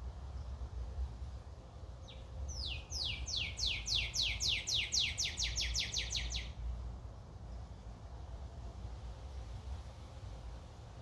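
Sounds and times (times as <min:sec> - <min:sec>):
bird singing whistled notes: 0:02.0 - 0:06.6.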